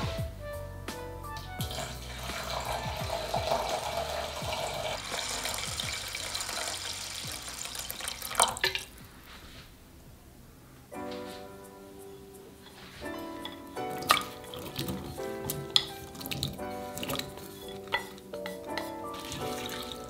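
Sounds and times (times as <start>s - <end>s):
water pouring into a pot: 1.6s - 9.0s, 13.8s - 18.2s, 19.2s - 20.0s.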